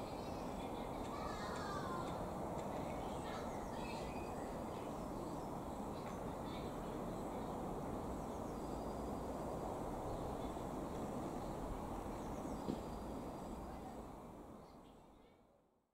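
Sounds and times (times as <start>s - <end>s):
faint bird chirps: 2.9s - 7.4s
brief knock: 12.6s - 12.9s.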